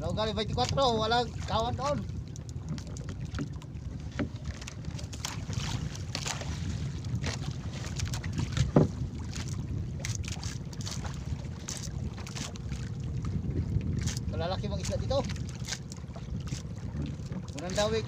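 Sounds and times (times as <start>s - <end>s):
light knocks and clicks on hull: 0.0s - 18.0s
wind rumbling on microphone: 0.0s - 18.0s.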